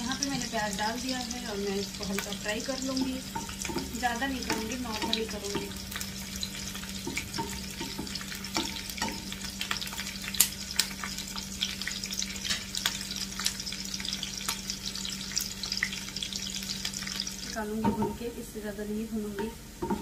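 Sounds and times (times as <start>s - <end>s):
spatula stirring in pan: 0.0s - 12.6s
onions sizzling in hot oil: 0.0s - 20.0s.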